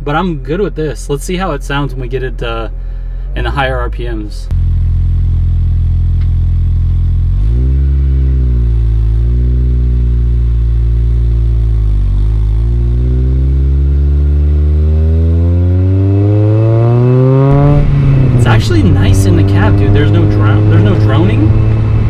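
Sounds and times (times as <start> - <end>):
car engine accelerating: 4.5 - 22.0.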